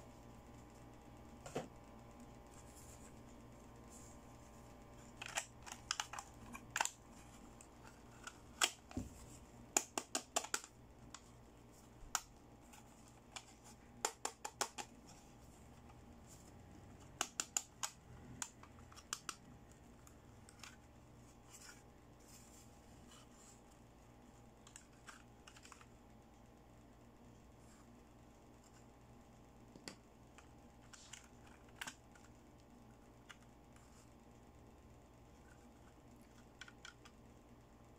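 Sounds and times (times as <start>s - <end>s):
hard plastic clicks and taps: 9.7s - 11.2s, 13.4s - 14.9s.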